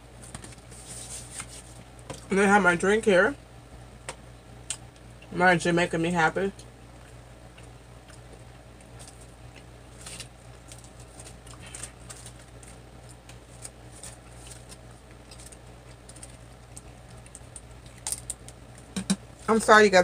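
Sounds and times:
low electrical hum: 0:00.0 - 0:20.0
chewing and crackles: 0:06.5 - 0:19.5.

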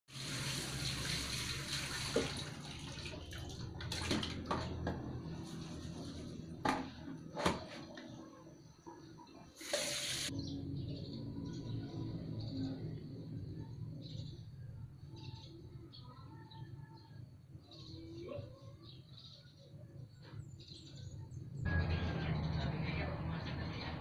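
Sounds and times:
water running from a tap: 0:00.1 - 0:04.5, 0:09.6 - 0:10.3
water splashing into plastic basin: 0:00.1 - 0:04.8.

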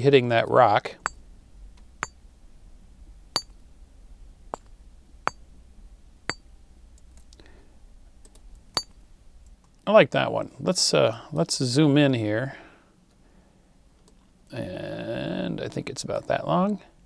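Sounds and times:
rock struck with ringing ping: 0:02.0 - 0:02.2, 0:03.3 - 0:03.6, 0:04.5 - 0:05.5, 0:08.8 - 0:09.0.

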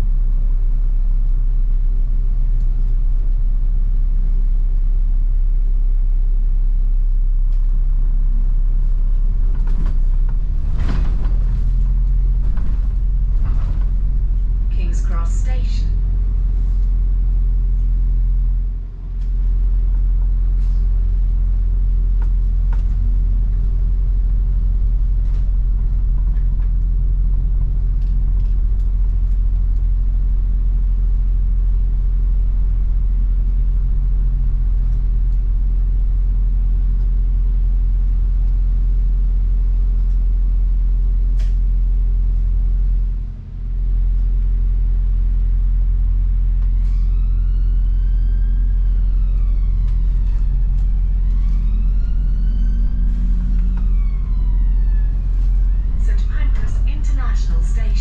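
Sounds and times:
bus engine rumble: 0:00.0 - 0:05.4, 0:06.0 - 0:58.0
drive train hum: 0:00.0 - 0:58.0
faint clicks and rattles: 0:09.2 - 0:37.6, 0:48.9 - 0:58.0.

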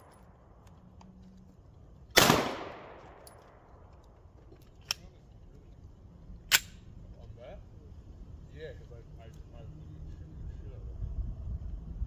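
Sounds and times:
pistol shot: 0:02.1 - 0:03.4.

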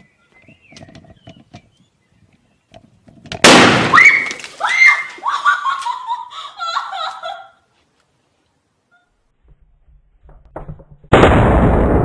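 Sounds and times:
man laughing: 0:05.3 - 0:07.6.

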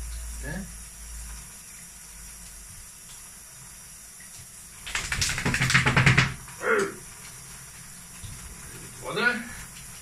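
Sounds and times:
wet dog shaking off: 0:04.8 - 0:06.5.

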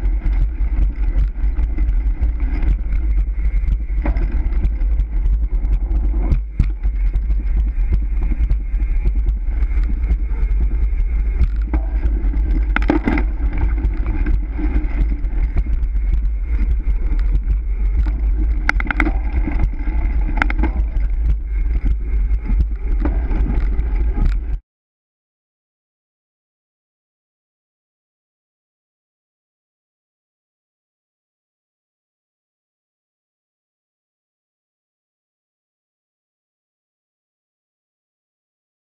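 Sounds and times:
bike clicks and rattles: 0:00.0 - 0:24.6
wind buffeting microphone: 0:00.0 - 0:24.6.

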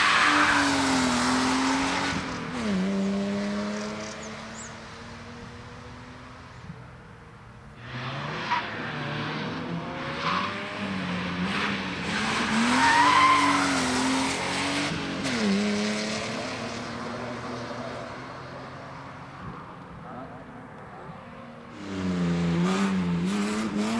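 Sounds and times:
tyre squeals: 0:12.6 - 0:13.9
car engine revving hard: 0:21.8 - 0:23.9.

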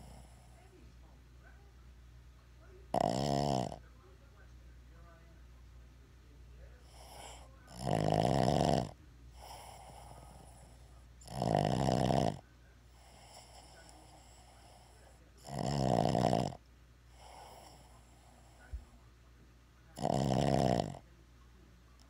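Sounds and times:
dog snoring: 0:00.0 - 0:00.7, 0:02.9 - 0:03.9, 0:06.8 - 0:19.0, 0:20.0 - 0:21.1
soft breathing: 0:00.0 - 0:01.2, 0:06.6 - 0:07.8, 0:09.2 - 0:11.2, 0:12.8 - 0:15.4, 0:17.0 - 0:19.2.

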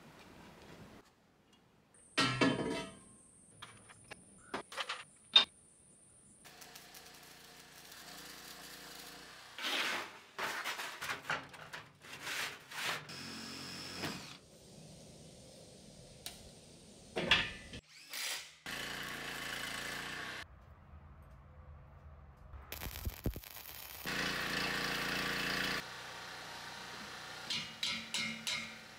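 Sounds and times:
power tool high whine: 0:13.1 - 0:14.4
grinding steel: 0:22.7 - 0:28.9.

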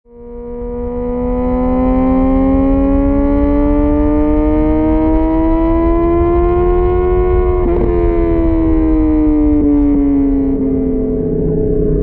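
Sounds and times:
motorcycle engine at high revs: 0:00.1 - 0:12.0
low rumble: 0:05.5 - 0:12.0.

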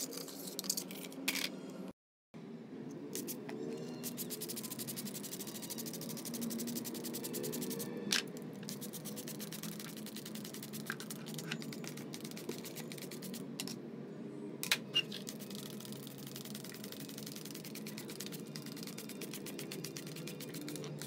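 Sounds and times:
spray bottle squirting: 0:15.0 - 0:21.0.

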